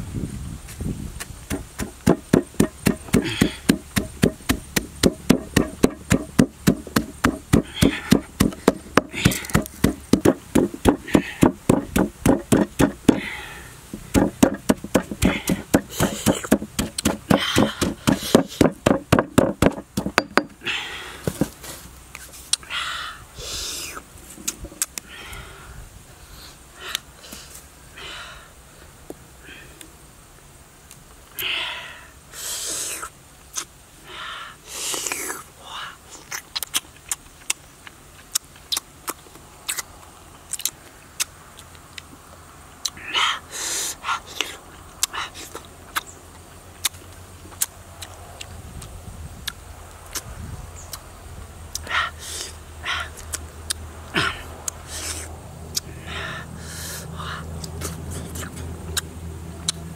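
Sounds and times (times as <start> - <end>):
low steady hum: 0.0 - 59.9
man breathing sharply: 3.1 - 3.9, 13.1 - 13.9, 20.6 - 21.4, 25.0 - 28.6, 34.0 - 34.9, 43.2 - 44.1, 55.9 - 57.6
wet chewing smacks and clicks: 36.3 - 42.1, 45.0 - 46.1, 46.8 - 50.3, 57.6 - 59.9.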